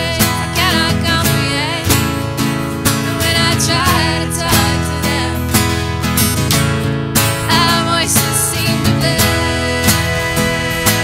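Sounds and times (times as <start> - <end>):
person singing: 0.0 - 2.1, 2.9 - 5.7, 7.4 - 11.0
acoustic guitars strumming: 0.0 - 11.0.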